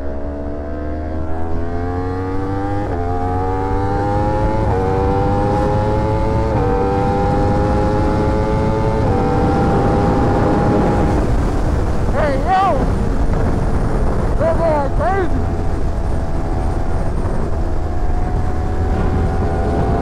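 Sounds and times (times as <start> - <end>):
motorcycle engine revving through gears: 0.0 - 11.6, 15.4 - 20.0
low rumble: 10.2 - 20.0.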